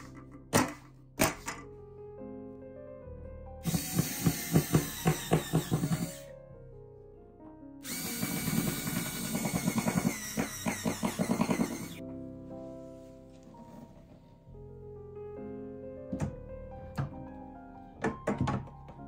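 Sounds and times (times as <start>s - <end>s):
cordless drill driving screws: 3.6s - 6.3s, 7.8s - 12.0s.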